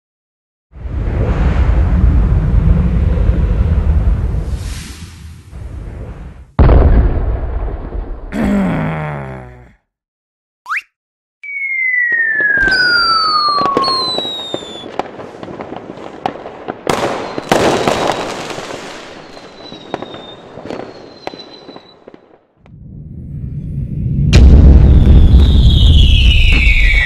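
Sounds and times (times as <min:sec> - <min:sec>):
firework whistles: 0:11.4 - 0:15.0, 0:17.0 - 0:22.2, 0:23.4 - 0:27.0
firework cracks and pops: 0:12.1 - 0:22.6, 0:24.9 - 0:27.0.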